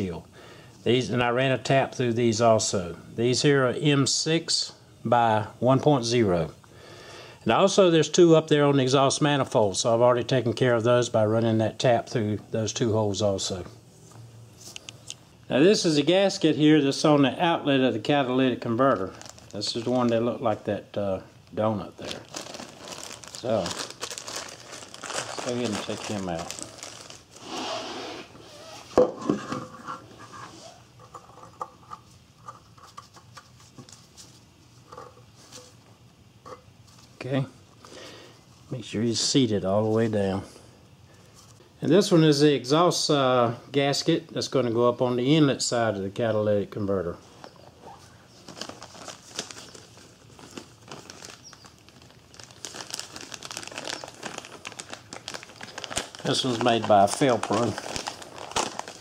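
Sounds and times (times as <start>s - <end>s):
plastic packaging crinkling: 18.1s - 20.7s, 21.4s - 27.6s, 47.9s - 59.0s.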